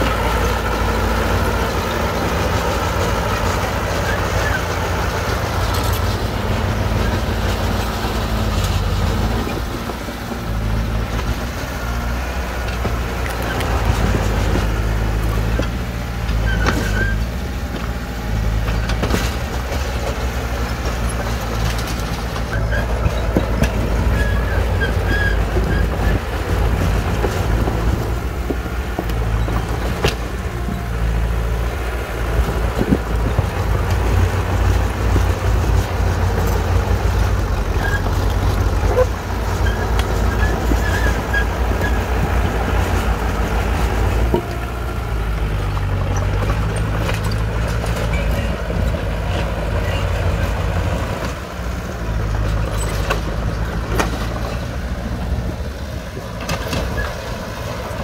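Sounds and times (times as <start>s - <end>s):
bulldozer diesel engine running: 0.0s - 58.0s
high squeaks: 16.3s - 17.4s, 22.5s - 27.0s, 38.9s - 42.1s.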